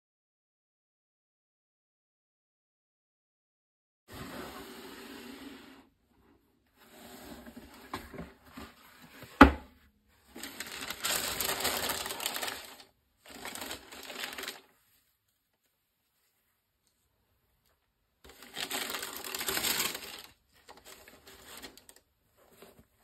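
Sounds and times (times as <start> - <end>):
tissue paper crinkling: 10.2 - 15.4, 18.3 - 23.0.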